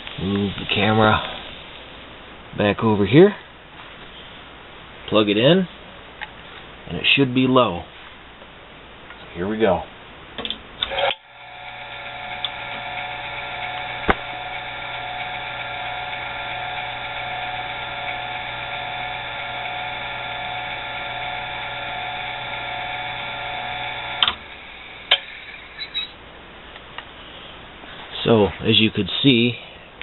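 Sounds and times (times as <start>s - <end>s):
electric motor humming: 10.9s - 25.8s.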